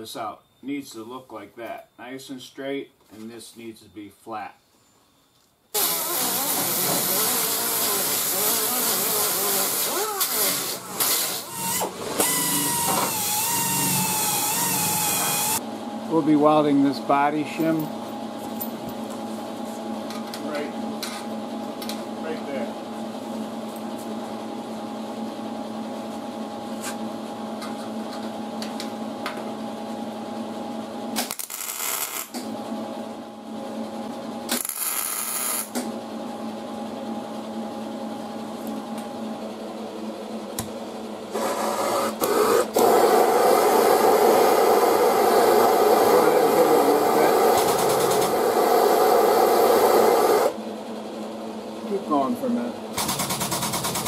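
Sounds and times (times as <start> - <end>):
steady hum: 0.0 - 54.0
mig welder welding: 5.8 - 15.6, 31.1 - 32.5, 34.4 - 35.9, 41.3 - 50.6, 53.0 - 54.0.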